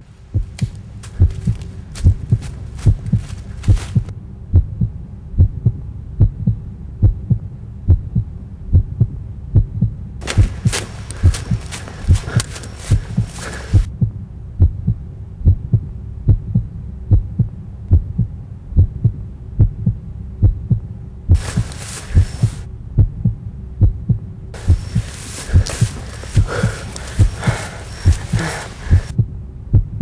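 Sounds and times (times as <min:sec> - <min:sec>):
heartbeat thumps: 0:00.3 - 0:30.0
hiss: 0:21.4 - 0:22.6, 0:24.6 - 0:29.1.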